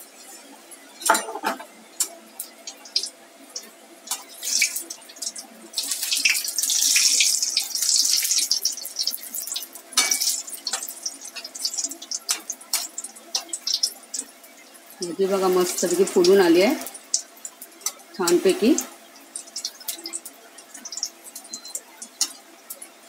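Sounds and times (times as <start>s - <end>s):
fritters deep-frying in oil: 0.0s - 23.0s
spatula clicking against pan: 10.0s - 13.9s.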